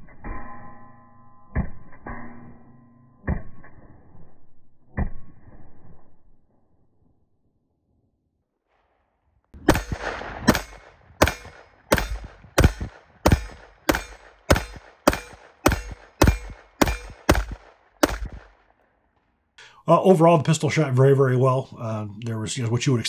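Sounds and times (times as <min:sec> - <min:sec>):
pistol shots: 0:09.6 - 0:18.8.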